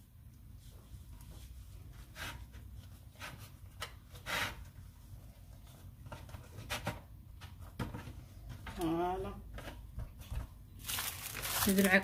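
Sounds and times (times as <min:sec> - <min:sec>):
tortilla rustling on cutting board: 0:00.5 - 0:06.0, 0:10.8 - 0:12.0.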